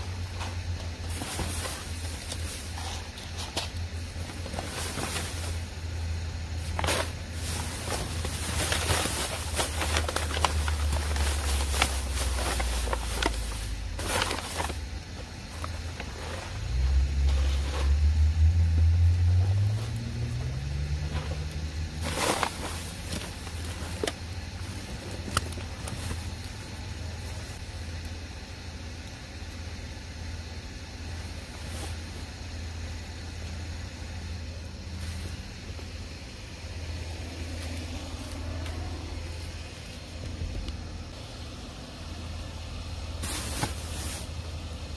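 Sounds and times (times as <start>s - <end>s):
low steady engine hum: 0.0s - 44.9s
plastic bags crinkling: 6.6s - 14.8s, 22.0s - 26.5s
vehicle engine accelerating: 16.5s - 22.4s, 36.9s - 41.4s.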